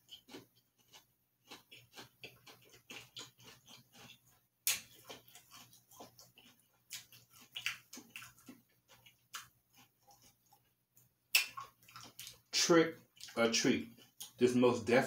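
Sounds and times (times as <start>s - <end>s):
wet mouth clicks: 0.0s - 10.6s, 11.3s - 12.5s, 13.2s - 14.4s
crunchy chewing: 0.0s - 14.4s.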